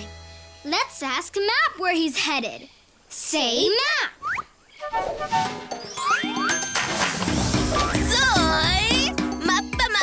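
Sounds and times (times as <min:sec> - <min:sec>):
rising whistle-like slide: 0:04.2 - 0:06.8.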